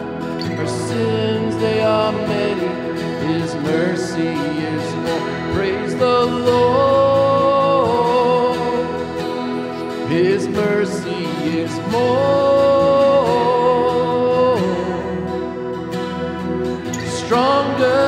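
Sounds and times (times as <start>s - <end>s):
man singing a hymn: 0.0s - 15.7s, 17.0s - 18.0s
strummed acoustic guitar: 0.0s - 18.0s.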